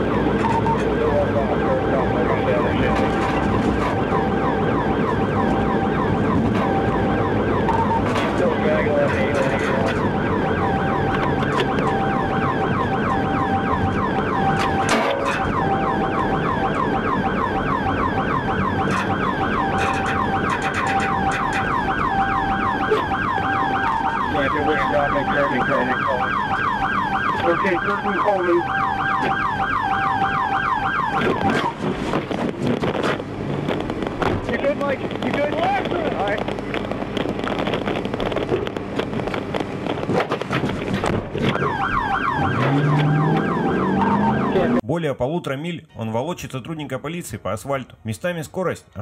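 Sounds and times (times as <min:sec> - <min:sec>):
police siren yelping: 0:00.0 - 0:32.3, 0:40.9 - 0:44.8.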